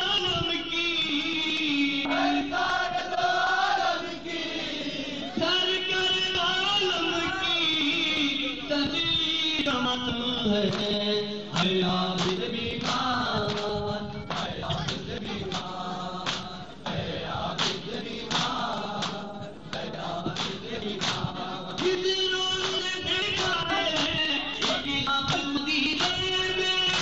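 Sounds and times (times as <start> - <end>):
men chanting together: 1.2 - 8.7, 9.6 - 27.0
hands slapping bare chests: 11.6 - 13.7, 14.3 - 16.5, 17.6 - 22.0.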